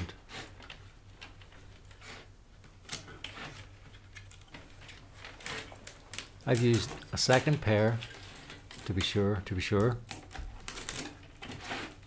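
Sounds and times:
willow rods tapping and scraping: 2.9 - 12.0.

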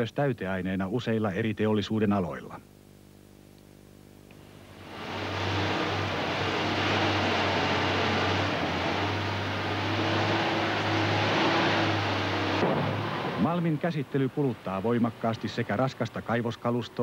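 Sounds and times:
loader diesel engine droning: 4.4 - 17.0.

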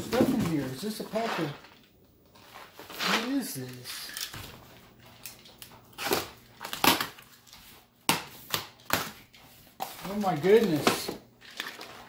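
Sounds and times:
cardboard flaps tearing open: 5.9 - 7.3.

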